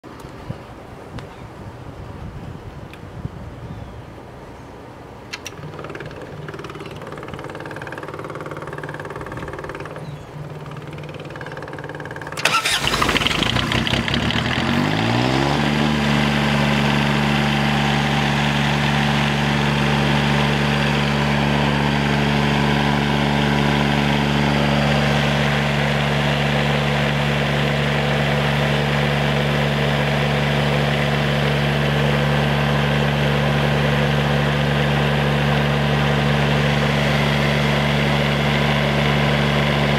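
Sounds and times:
diesel generator starting and running: 4.8 - 39.9.

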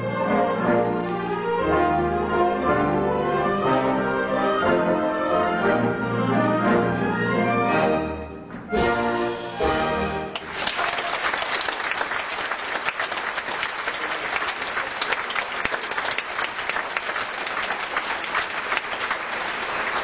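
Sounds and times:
orchestra playing: 0.0 - 10.6
audience applauding: 10.3 - 20.0.

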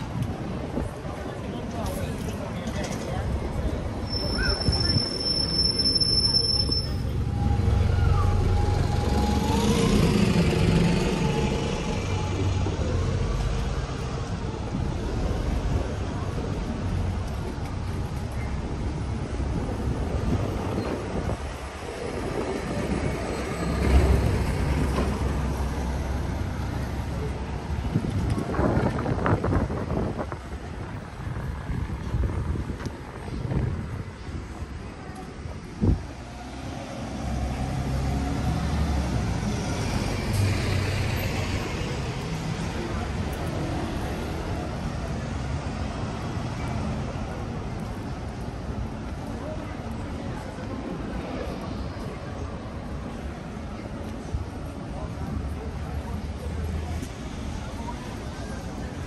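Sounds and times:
low rumble of traffic: 0.0 - 59.0
wind on microphone: 19.4 - 25.5, 27.3 - 36.2.

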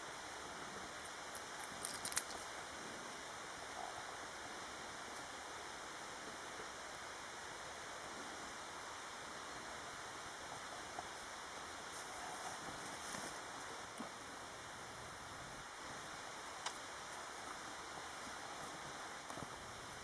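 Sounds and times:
outdoor background hiss: 0.0 - 20.0
rattle of sharp clicks: 1.4 - 2.4.

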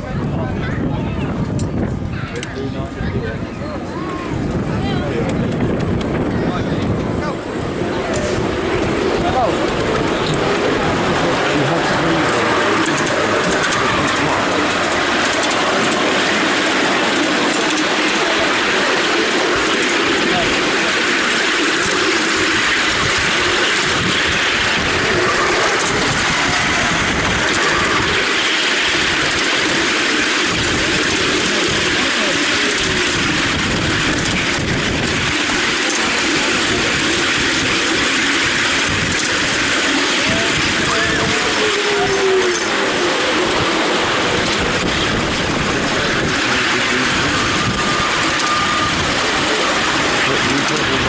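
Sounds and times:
miniature train running drone: 0.0 - 51.0.

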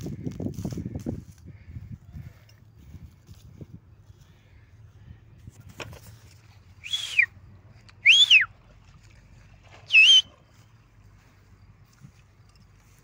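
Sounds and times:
loud whistles rising and falling: 6.8 - 7.3, 8.0 - 8.5, 9.9 - 10.3.

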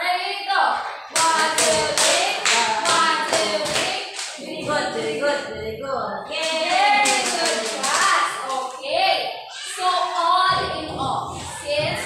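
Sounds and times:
hands clapping to a beat: 1.2 - 5.0, 6.4 - 8.8.

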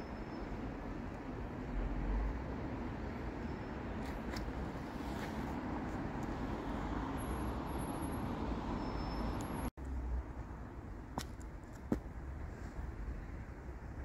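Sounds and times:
road traffic hum: 0.0 - 14.0.

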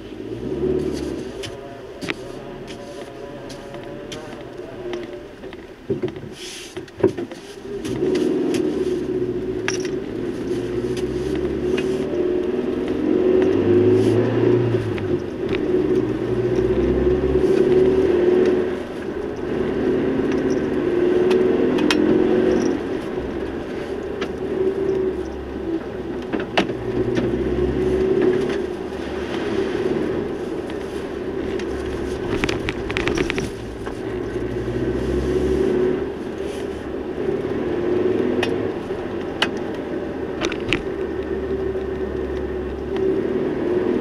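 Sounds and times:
vehicle engine running: 0.0 - 44.0
sharp clicks and rattles: 9.4 - 13.6, 14.7 - 29.0, 30.3 - 34.8, 38.2 - 43.1.

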